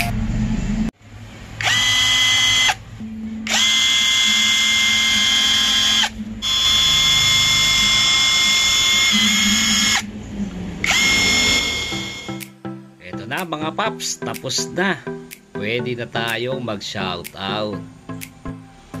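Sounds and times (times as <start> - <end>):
impact wrench motor whine: 1.6 - 10.1, 10.8 - 12.4.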